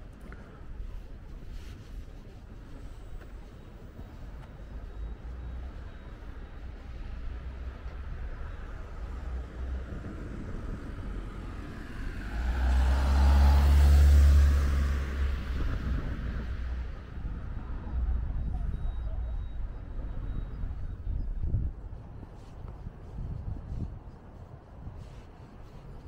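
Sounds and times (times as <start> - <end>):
motor vehicle passing: 8.8 - 17.8.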